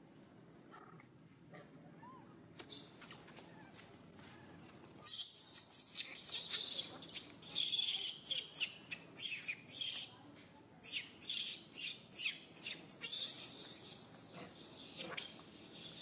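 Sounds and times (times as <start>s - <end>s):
monkeys screeching: 5.0s - 10.1s, 10.8s - 16.0s.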